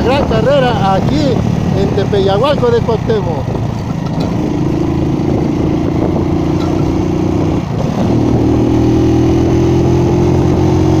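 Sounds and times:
vehicle engine running: 0.0s - 11.0s.

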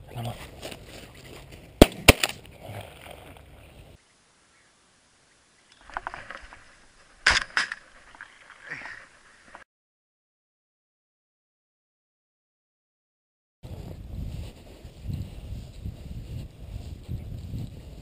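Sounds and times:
shotgun cracks: 1.8s - 2.4s, 7.2s - 7.8s.

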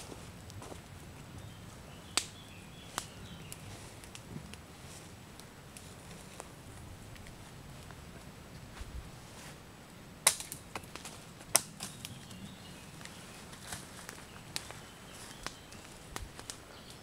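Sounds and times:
dry leaves crackling underfoot: 0.0s - 9.6s, 10.3s - 17.0s
twigs snapping underfoot: 2.1s - 4.6s, 10.2s - 17.0s.

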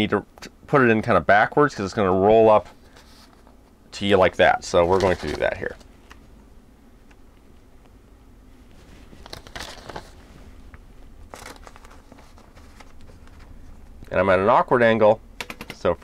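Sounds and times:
paper rustling: 2.6s - 3.5s, 4.8s - 5.8s, 8.7s - 10.6s, 11.2s - 13.6s.

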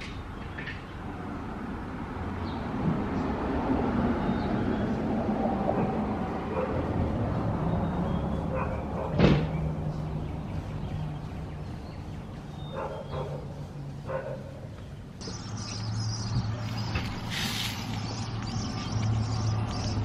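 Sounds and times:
dog barking: 6.5s - 6.9s, 8.5s - 9.2s, 12.7s - 14.6s.

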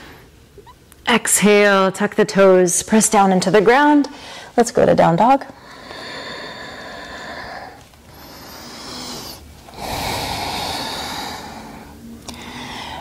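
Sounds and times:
woman breathing slowly and deeply: 4.1s - 4.6s, 5.6s - 13.0s.

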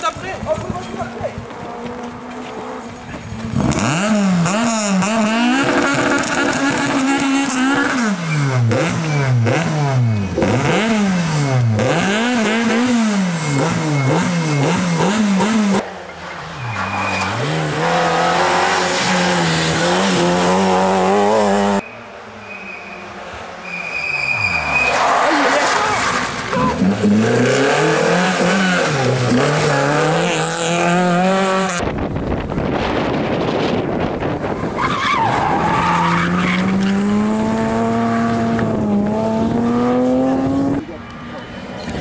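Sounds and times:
car engine revving hard: 3.5s - 15.8s, 17.1s - 21.8s, 24.6s - 31.8s, 35.3s - 40.8s.

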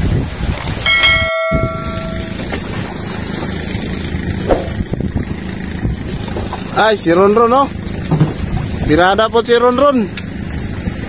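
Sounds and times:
wind and boat rumble: 0.0s - 11.0s
bell-like notification chime: 0.9s - 2.5s.

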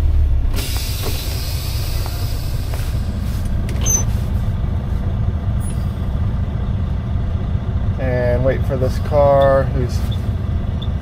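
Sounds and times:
diesel engine running: 0.0s - 11.0s
air release hiss: 0.6s - 3.4s.

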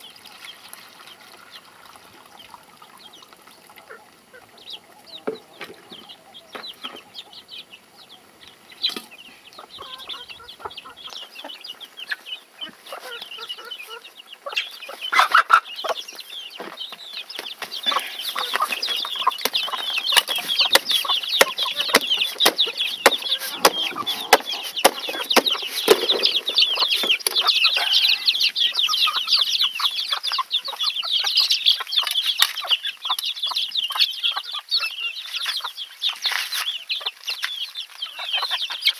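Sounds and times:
chicks cheeping: 0.0s - 38.9s
hens clucking: 3.8s - 32.0s.

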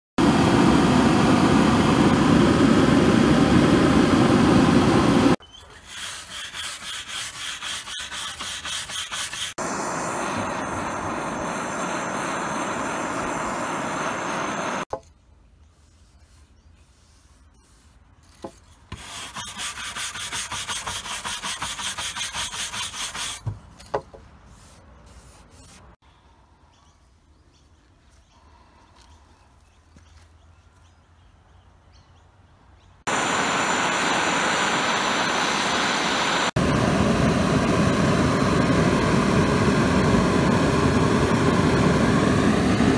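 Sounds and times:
rhythmic rubbing strokes on wood: 5.8s - 9.6s, 15.7s - 23.6s
propane torch flame burning: 9.6s - 14.9s.

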